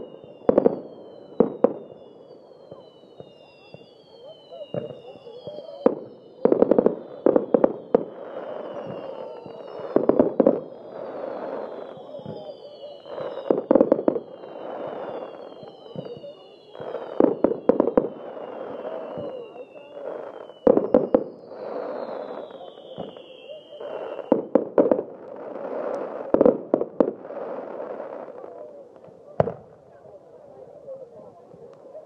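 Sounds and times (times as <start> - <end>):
falling firework whistles: 0.0 - 29.8
firework bangs: 0.0 - 30.0
firework crackling: 0.0 - 32.0.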